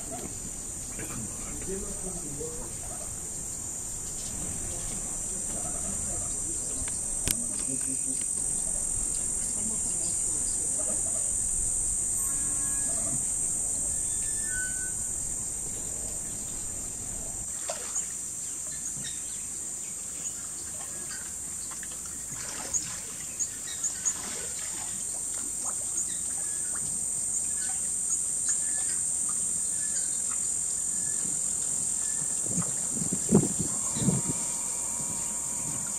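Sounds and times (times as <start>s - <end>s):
high-pitched insect chorus: 0.0s - 21.8s, 22.5s - 35.9s.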